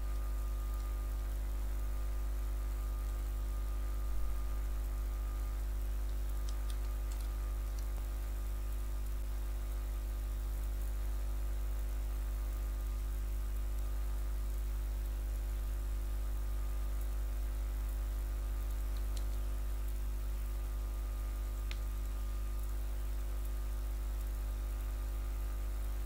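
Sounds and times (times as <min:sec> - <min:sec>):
electrical mains hum and buzz: 0:00.0 - 0:26.0
faint clicks: 0:18.7 - 0:19.5.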